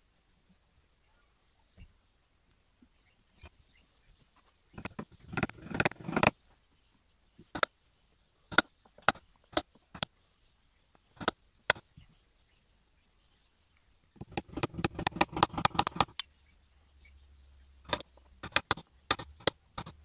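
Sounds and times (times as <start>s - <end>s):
sharp taps and knocks: 4.8s - 6.3s, 14.2s - 16.3s, 17.9s - 20.0s.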